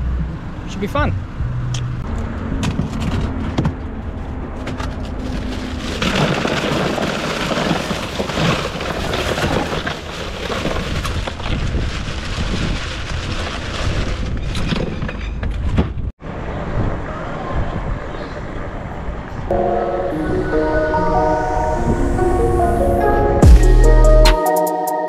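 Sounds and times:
ice cubes tumbling into cooler: 0:05.2 - 0:14.3.

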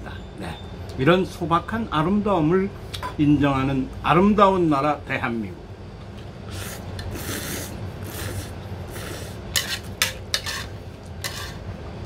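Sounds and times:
person slurping noodles: 0:06.5 - 0:09.4.

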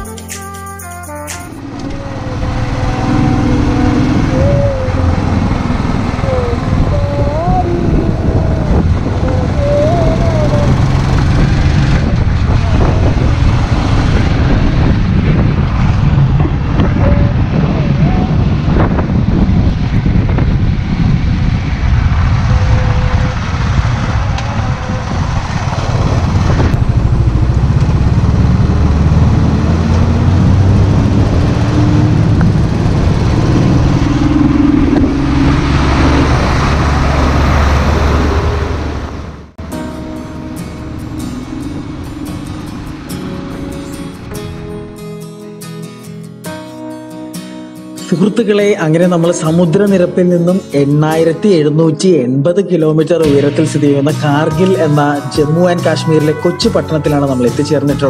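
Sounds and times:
motorcycle engine running: 0:00.9 - 0:45.0
wind on microphone: 0:01.6 - 0:39.6.

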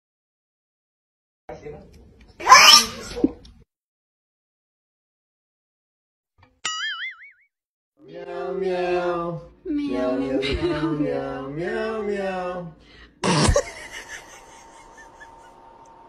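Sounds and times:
man singing long notes: 0:08.0 - 0:12.8.

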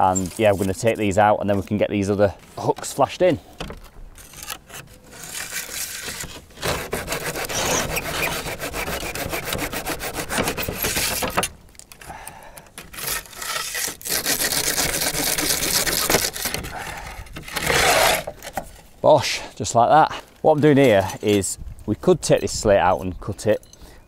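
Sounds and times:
saw blade cutting nails: 0:04.2 - 0:11.5, 0:12.8 - 0:16.6, 0:17.5 - 0:18.3.

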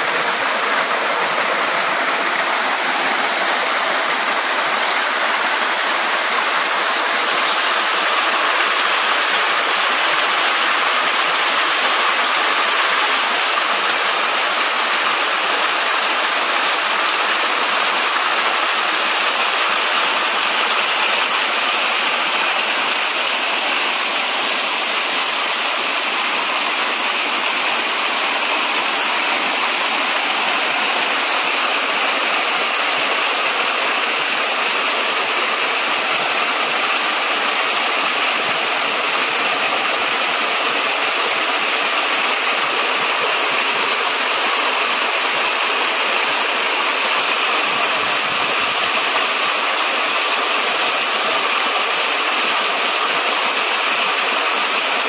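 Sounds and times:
small waterfall splashing: 0:00.0 - 0:55.0.

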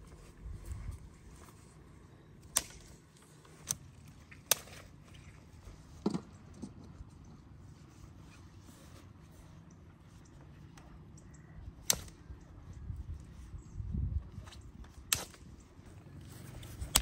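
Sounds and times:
low outdoor background: 0:00.0 - 0:17.0
dry sticks cracking: 0:02.4 - 0:05.4, 0:10.7 - 0:12.4, 0:14.9 - 0:15.6, 0:16.5 - 0:17.0.

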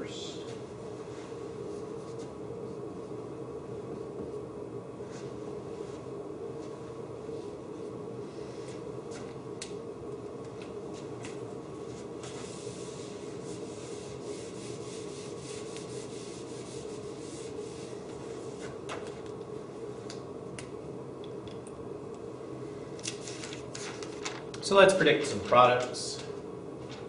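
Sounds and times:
room hum: 0:00.0 - 0:27.0
eraser rubbing whiteboard: 0:12.2 - 0:18.8.

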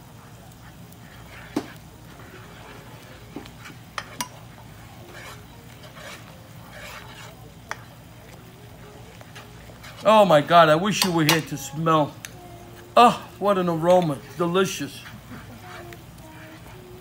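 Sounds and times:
sauce simmering: 0:00.0 - 0:17.0
metal spoon clinking against pan: 0:03.9 - 0:04.4, 0:10.9 - 0:11.7.

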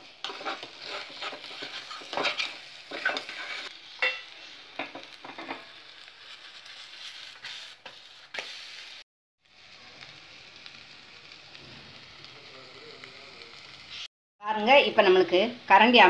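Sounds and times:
spatula scraping a metal pan: 0:00.0 - 0:09.0
oil sizzling: 0:00.0 - 0:16.0.

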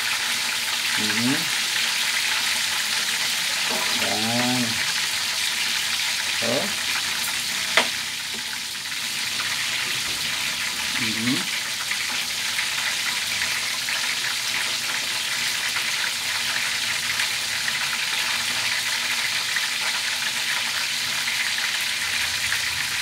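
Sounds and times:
spatula turning food in pan: 0:00.0 - 0:10.9
chicken sizzling in frying pan: 0:00.0 - 0:23.0.

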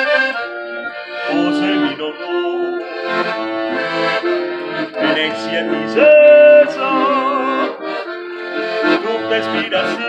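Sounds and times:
piano accordion playing: 0:00.0 - 0:10.0.

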